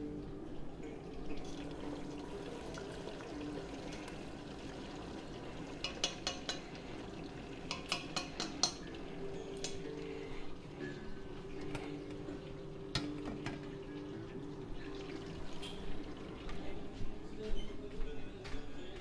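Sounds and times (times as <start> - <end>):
food sizzling in hot oil: 1.4 - 9.5.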